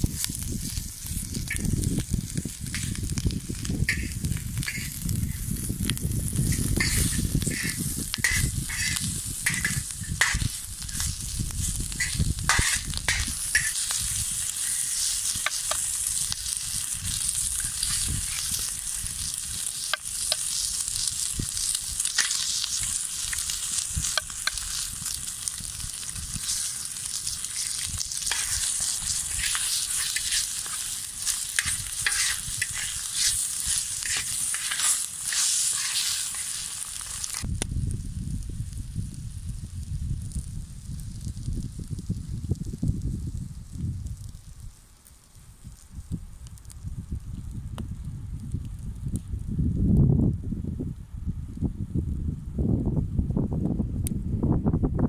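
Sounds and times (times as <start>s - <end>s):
spattering pops: 0.0s - 37.7s
food sizzling in pan: 0.0s - 45.8s.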